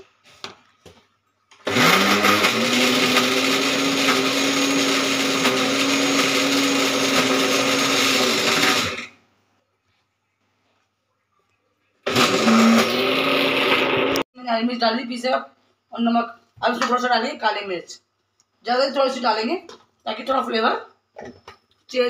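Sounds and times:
mixer grinder motor whining: 1.6 - 9.2, 12.0 - 14.3.

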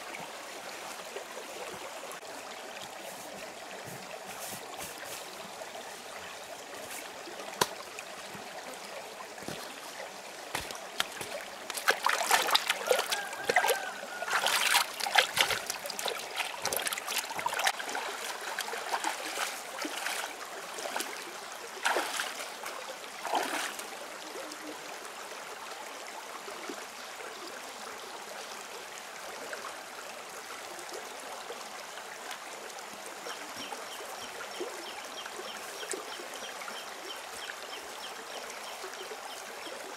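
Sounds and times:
stream trickling over rocks: 0.0 - 39.9
hands splashing in water: 10.5 - 21.1, 21.8 - 22.5, 23.2 - 23.8.

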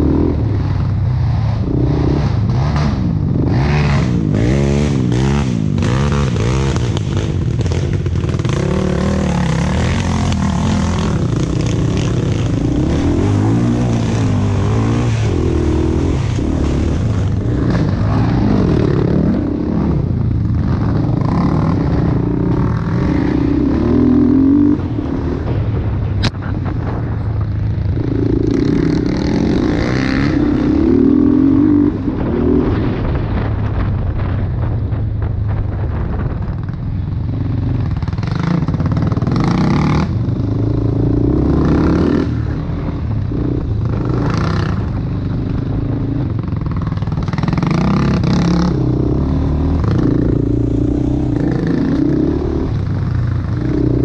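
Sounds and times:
atv engine revving: 0.0 - 25.8, 28.0 - 33.0, 37.6 - 54.0.

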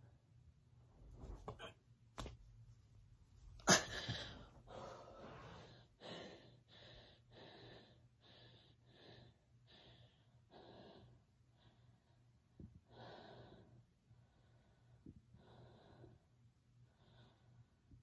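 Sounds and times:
woman breathing hard: 3.6 - 17.7.

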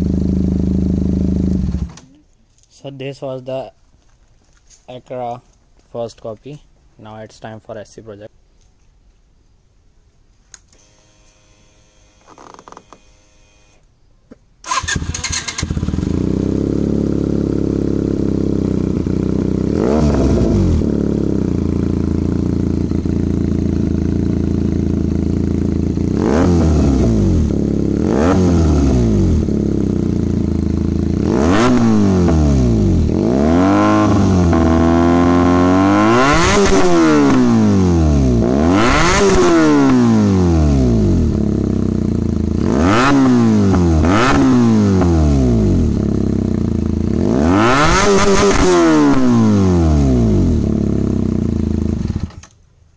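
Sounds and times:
motorcycle engine idling and revving: 0.0 - 2.1, 14.6 - 52.5.

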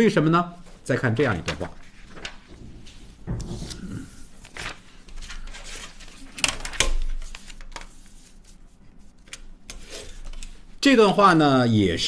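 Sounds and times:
paper sheets rustling: 0.6 - 11.4.

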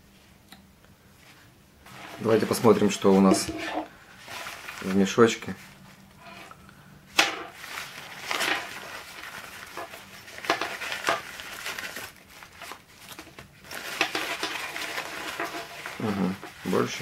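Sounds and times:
plastic bag crinkling: 1.9 - 3.5, 4.1 - 5.8, 7.4 - 17.0
nylon pouch rustling: 1.9 - 5.1, 7.5 - 17.0.

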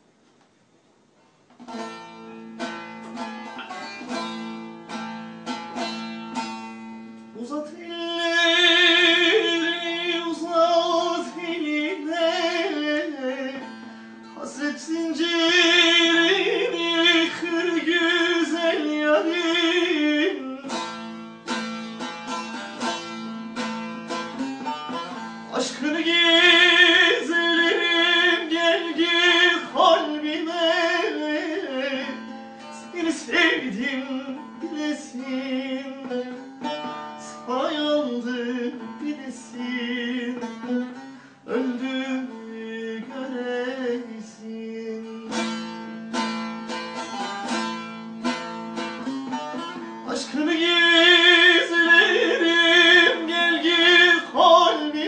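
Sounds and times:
long-necked lute plucked and strummed: 1.5 - 55.0
man singing: 6.0 - 21.1, 25.1 - 45.9, 49.5 - 55.0.

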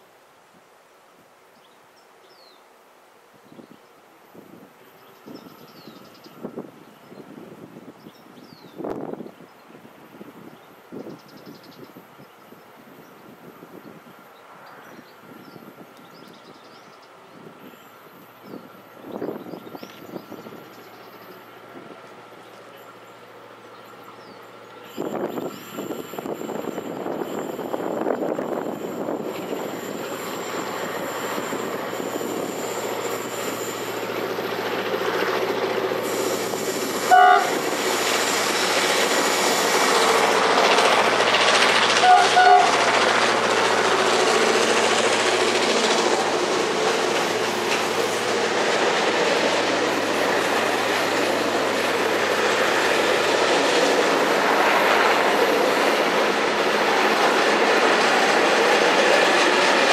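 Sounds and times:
freight train wagons passing: 9.8 - 59.9
locomotive horn blasts: 37.0 - 37.6, 42.0 - 42.8.

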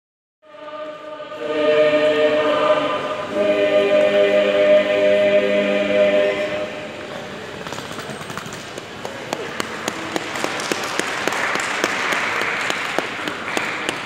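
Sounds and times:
choir singing a cappella: 0.4 - 7.1.

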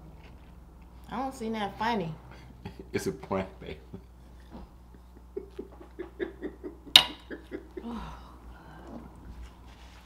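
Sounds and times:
person laughing: 3.9 - 8.3.

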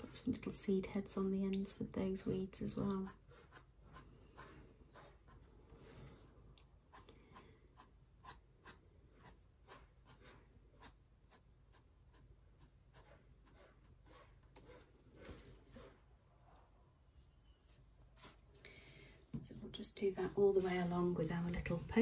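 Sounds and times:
pen nib scratching paper: 6.9 - 14.9.

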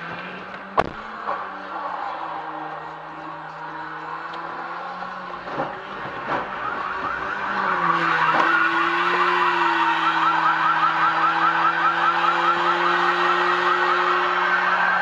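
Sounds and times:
vehicle hum: 0.0 - 15.0
warbling electronic siren: 6.0 - 15.0.

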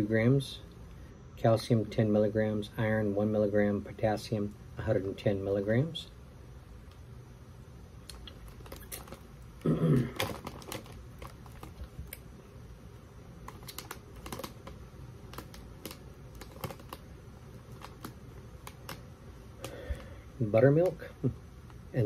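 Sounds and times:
plastic snack bag crinkling: 8.0 - 12.4, 13.4 - 19.0.

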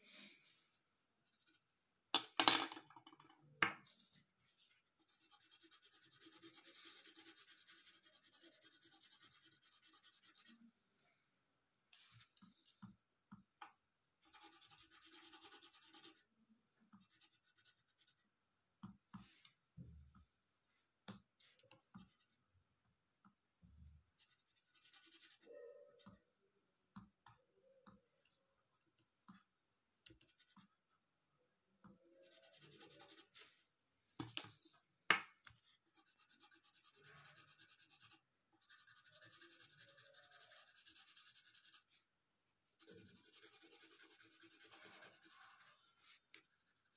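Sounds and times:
colored pencil scratching on paper: 1.2 - 1.7, 3.9 - 10.7, 14.2 - 16.3, 16.9 - 18.3, 21.6 - 22.5, 24.2 - 26.3, 30.1 - 31.0, 32.0 - 33.6, 35.7 - 42.0, 42.7 - 46.9.

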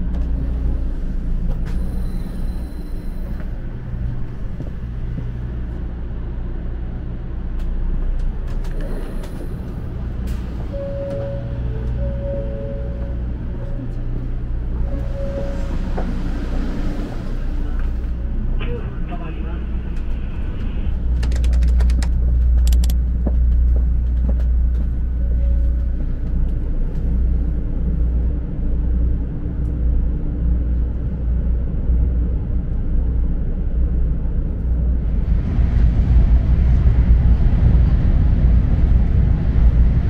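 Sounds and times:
train cabin rumble: 0.0 - 40.0
sharp clicks: 21.1 - 23.0.

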